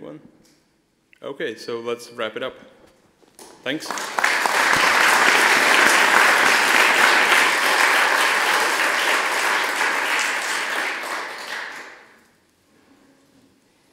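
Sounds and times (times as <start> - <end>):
audience applauding: 3.7 - 12.2.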